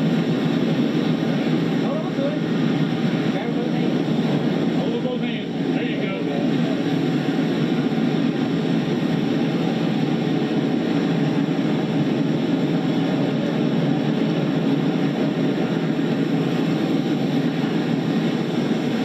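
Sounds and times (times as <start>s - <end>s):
fire engine pump running: 0.0s - 19.0s.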